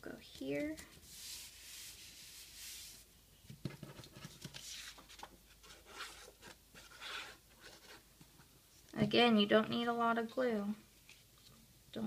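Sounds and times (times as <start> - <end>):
paper rustling and scratching: 3.6 - 8.0.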